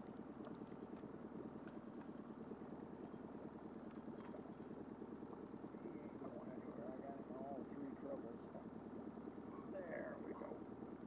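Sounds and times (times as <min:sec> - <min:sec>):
faint ticks: 0:00.0 - 0:02.4.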